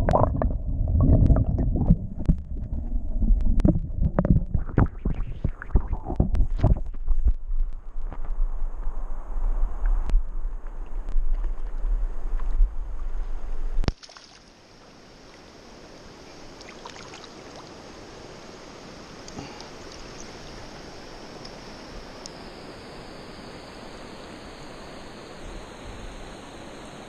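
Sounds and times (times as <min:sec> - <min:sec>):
loud low rumble: 0:00.0 - 0:10.6.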